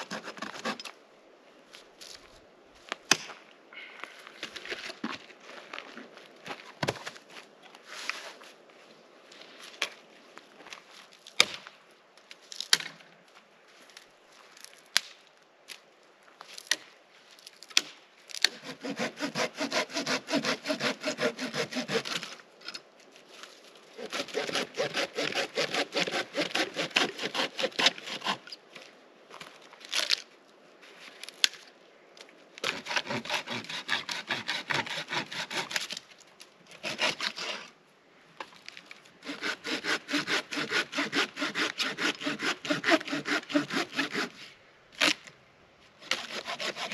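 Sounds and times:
hand saw cutting branches: 0:00.0 - 0:00.9, 0:18.4 - 0:22.4, 0:24.0 - 0:28.6, 0:32.6 - 0:36.0, 0:36.7 - 0:37.7, 0:39.2 - 0:45.2, 0:46.0 - 0:46.9.

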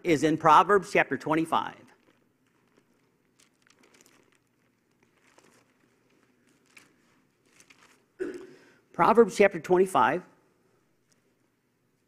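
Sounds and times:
pages turning: 0:01.9 - 0:08.2.

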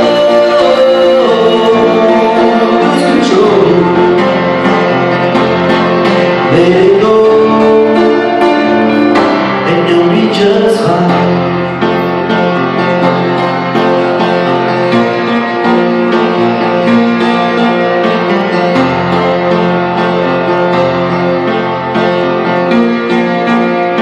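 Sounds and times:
man singing long held notes: 0:00.0 - 0:04.8, 0:06.4 - 0:11.6
instrumental accompaniment: 0:00.0 - 0:24.0.

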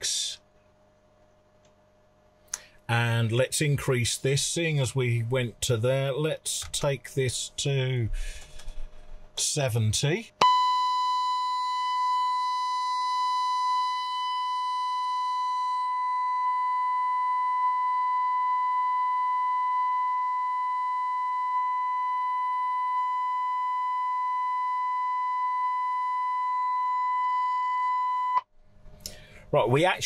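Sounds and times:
test tone through radio speaker: 0:10.4 - 0:28.5.

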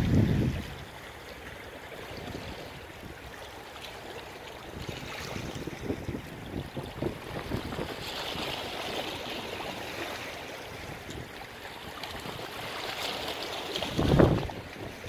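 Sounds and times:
wind rumble on microphone: 0:00.0 - 0:01.0, 0:02.1 - 0:03.3, 0:04.6 - 0:09.2, 0:13.8 - 0:15.0
small waves washing on shore: 0:00.0 - 0:15.0.

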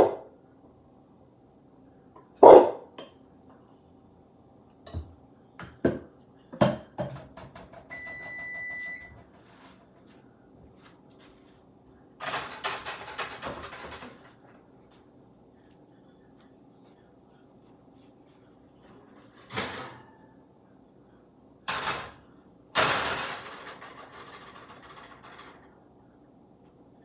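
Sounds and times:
dog barking: 0:00.0 - 0:00.3, 0:02.4 - 0:02.9
appliance electronic beep: 0:07.9 - 0:09.2.

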